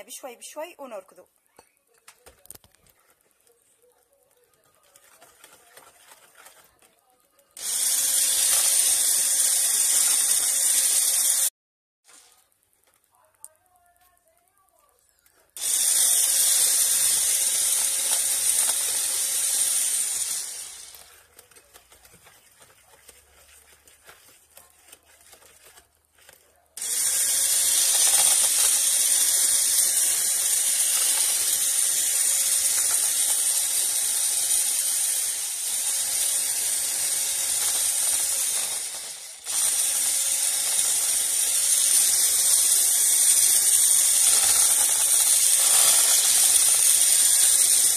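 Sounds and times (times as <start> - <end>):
electric hand mixer running: 7.6 - 11.5, 15.6 - 25.8, 26.8 - 47.9.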